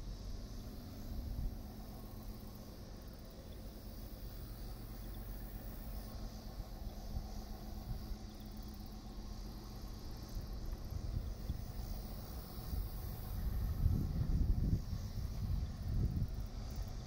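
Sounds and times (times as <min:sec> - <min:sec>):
insects chirring: 0:00.0 - 0:17.0
wind buffeting microphone: 0:10.5 - 0:17.0.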